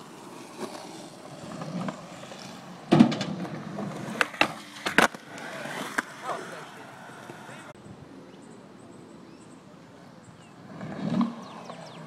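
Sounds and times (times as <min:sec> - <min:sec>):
skateboard impact: 0:00.0 - 0:07.6
skateboard rolling on concrete: 0:00.0 - 0:07.8, 0:09.5 - 0:12.0.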